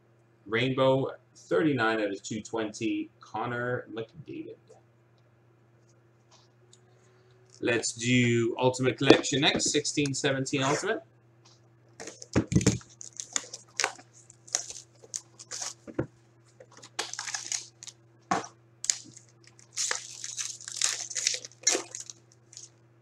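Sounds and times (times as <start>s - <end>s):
faint steady hum: 0.0s - 23.0s
packaging crinkling and tearing: 12.0s - 16.0s, 16.6s - 22.8s.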